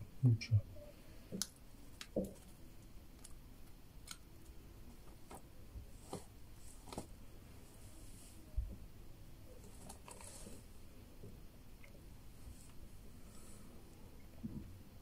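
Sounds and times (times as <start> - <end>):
squirrel nibbling clicks and rustles: 1.3 - 5.4.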